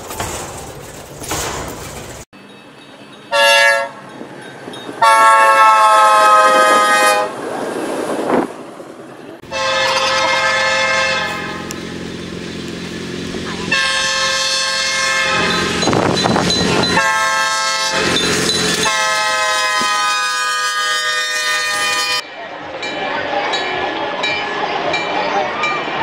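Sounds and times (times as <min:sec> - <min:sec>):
passing train rumble: 0:00.0 - 0:26.0
locomotive air horn blasts: 0:03.3 - 0:04.0, 0:05.0 - 0:07.4, 0:09.4 - 0:11.8, 0:13.6 - 0:16.0, 0:16.8 - 0:22.2.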